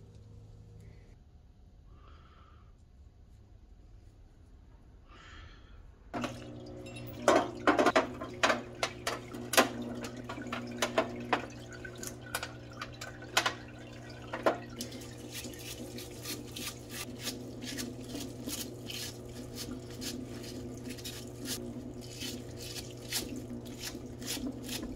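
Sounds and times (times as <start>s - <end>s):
flowing solvent: 6.2s - 24.9s
pump hum: 6.2s - 24.9s
stiff brush scrubbing: 14.7s - 24.9s.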